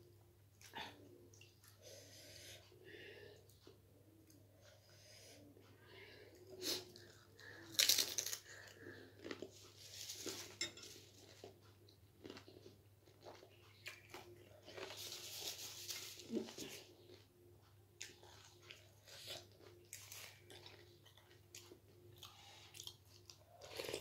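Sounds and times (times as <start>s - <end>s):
crunching snacks: 7.7s - 9.5s.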